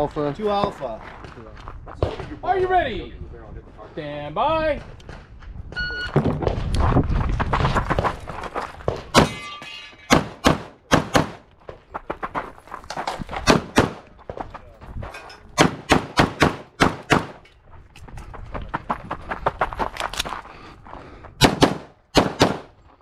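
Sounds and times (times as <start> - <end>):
start beep: 5.8 - 6.2.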